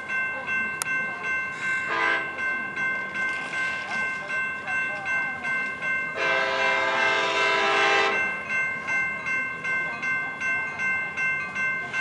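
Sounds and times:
level crossing warning bell: 0.0 - 12.0
train horn blast: 1.9 - 2.3, 6.2 - 8.2.

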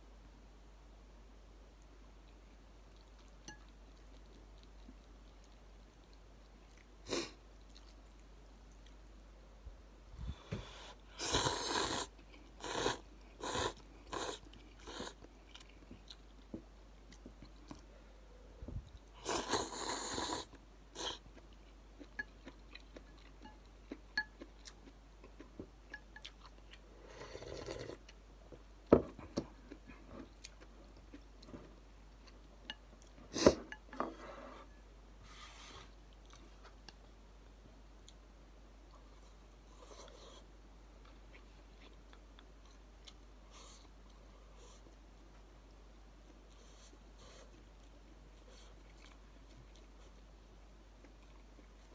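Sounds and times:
chewing: 2.2 - 9.2, 12.0 - 17.9, 18.9 - 28.2, 39.8 - 45.0, 46.2 - 50.3
person slurping noodles: 11.2 - 15.2, 19.2 - 21.2.

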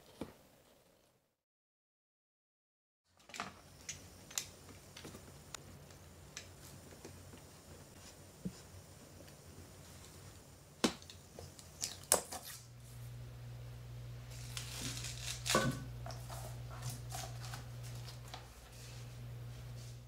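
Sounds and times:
steady low hum: 12.6 - 20.0.

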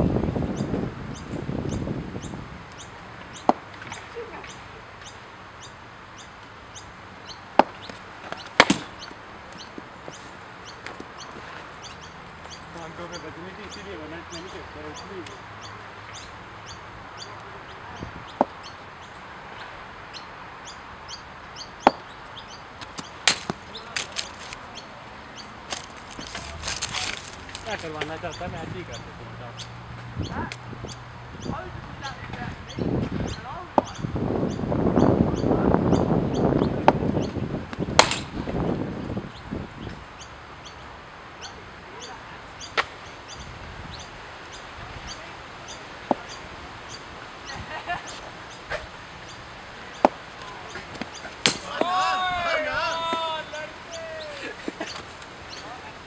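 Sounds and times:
bird chirping: 0.5 - 37.6, 38.6 - 51.5, 52.2 - 56.0
cricket bat hitting ball: 8.5 - 9.0, 23.2 - 24.2, 38.0 - 38.4, 51.0 - 51.9.

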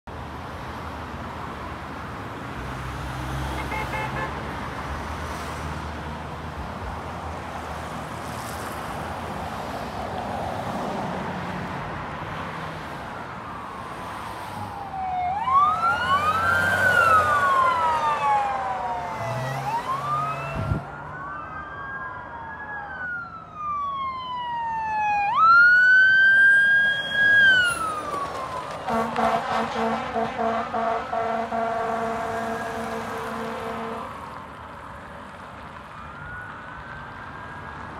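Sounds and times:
road traffic passing: 0.1 - 37.9
fire engine siren wailing: 12.8 - 37.9.

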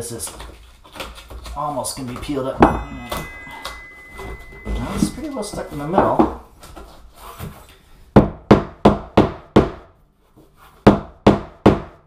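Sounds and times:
hammer knocking: 2.6 - 3.6.

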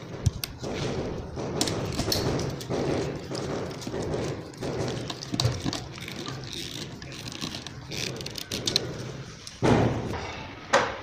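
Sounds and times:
stiff wires being bent: 0.0 - 10.2
loud thump: 9.6 - 10.3.

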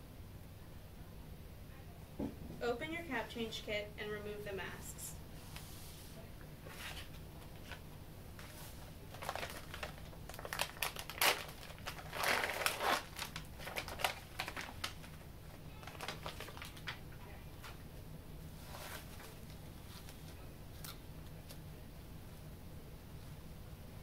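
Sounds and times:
packaging crinkling: 6.9 - 17.1.

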